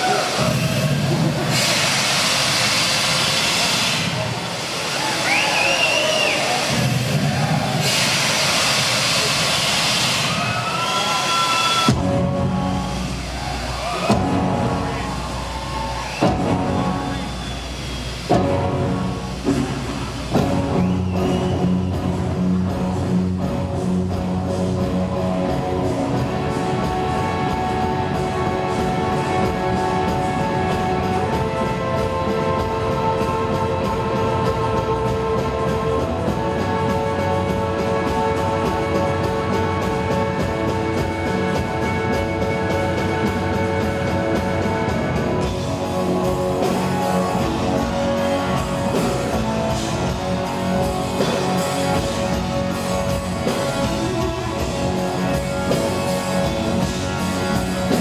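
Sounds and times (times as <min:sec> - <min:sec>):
live rock band: 0:00.0 - 0:58.0
electric guitar: 0:11.7 - 0:58.0.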